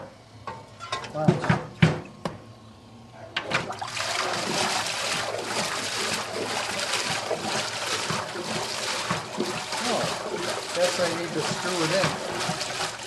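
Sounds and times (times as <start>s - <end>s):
water churning in washing machine: 3.4s - 13.0s.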